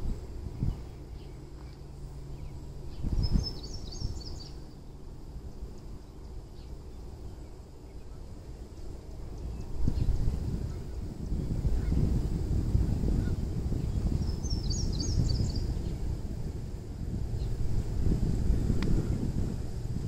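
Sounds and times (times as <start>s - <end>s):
low steady hum: 0.0s - 20.0s
wind rumble on microphone: 0.0s - 20.0s
high bird chirps: 0.6s - 5.0s, 14.2s - 16.0s.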